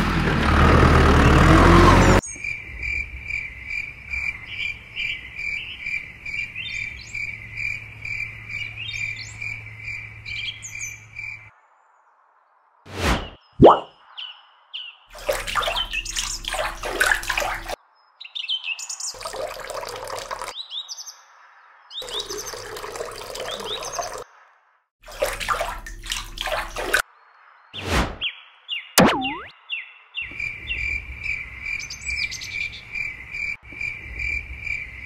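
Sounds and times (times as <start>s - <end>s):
birds chirping: 1.2s - 12.0s, 13.2s - 19.4s, 21.9s - 24.2s, 26.6s - 35.0s
water splashing and pouring: 15.1s - 17.8s, 19.2s - 20.6s, 22.0s - 24.2s, 25.0s - 27.0s.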